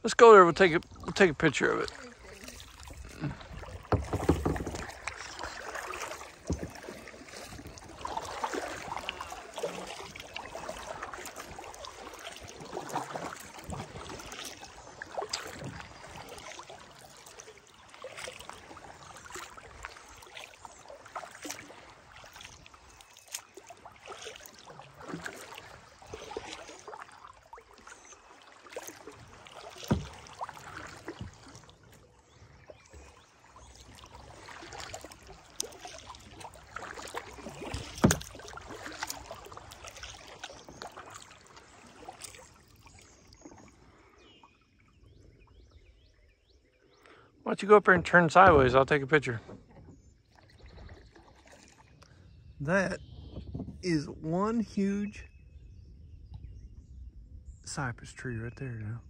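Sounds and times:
paddle strokes in water: 0.0 - 57.6
water dripping off paddle: 0.6 - 44.2, 48.0 - 52.2
sharp knocks: 3.9 - 4.9.

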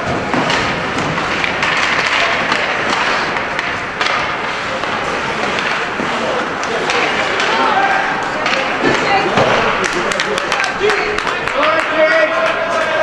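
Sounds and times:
crowd voices in arena: 0.0 - 13.0.

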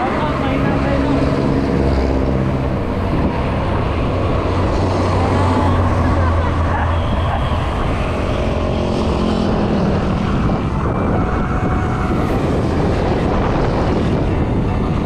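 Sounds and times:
bicycle tyres rumbling: 0.0 - 15.0
faint passing motor traffic: 0.0 - 15.0
wind rush over microphone: 0.0 - 15.0.

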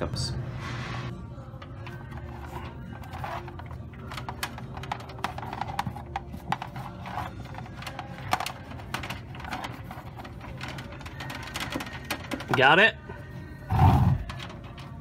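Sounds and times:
cable scraping on metal and wood: 1.8 - 12.8.

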